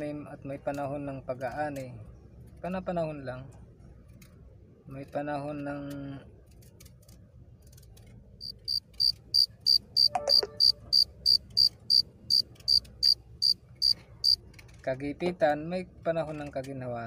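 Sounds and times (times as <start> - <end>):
cricket chirping: 8.4 - 14.4.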